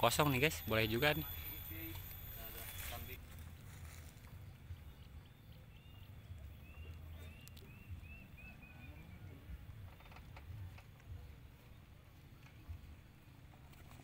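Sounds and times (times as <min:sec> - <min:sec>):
bird chirping: 0:04.3 - 0:10.2.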